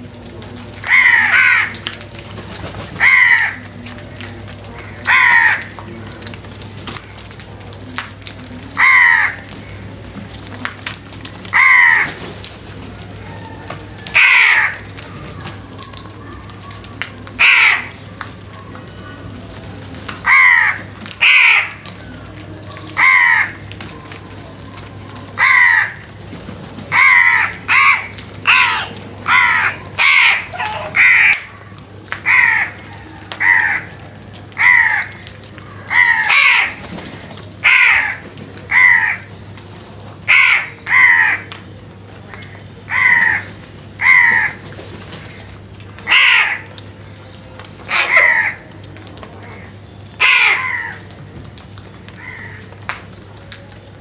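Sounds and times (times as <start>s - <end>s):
crows cawing: 0.8s - 1.8s, 3.0s - 3.7s, 4.8s - 5.8s, 8.8s - 9.8s, 11.5s - 12.2s, 13.2s - 15.4s, 17.4s - 18.1s, 20.2s - 21.9s, 22.9s - 23.7s, 25.4s - 26.2s, 26.9s - 31.6s, 32.2s - 36.8s, 37.6s - 39.3s, 40.3s - 41.6s, 42.3s - 45.4s, 46.0s - 46.8s, 47.9s - 48.7s, 49.6s - 51.2s, 52.1s - 52.8s.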